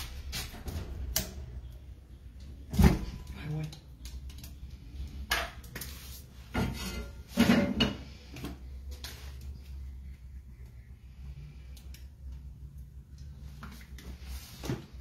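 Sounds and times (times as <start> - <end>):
low steady hum: 0.0 - 15.0
kitchen items handled: 2.6 - 9.6.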